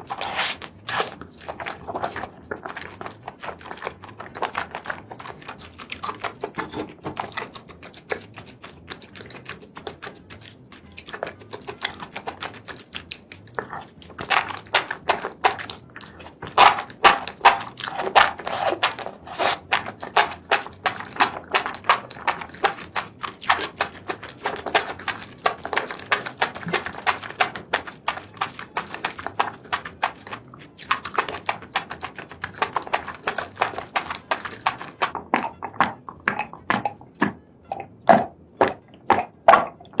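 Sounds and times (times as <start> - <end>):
wet chewing and slurping: 0.0 - 40.0
gulps of swallowing a drink: 34.4 - 40.0.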